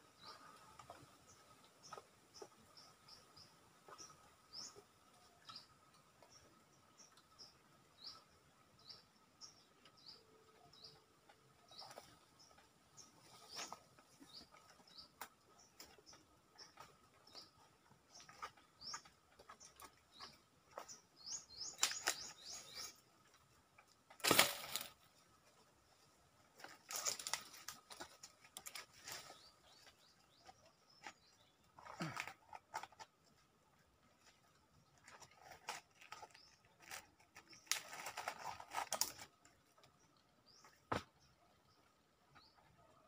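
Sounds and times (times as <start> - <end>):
branches rustling: 11.6 - 33.4, 34.0 - 39.9.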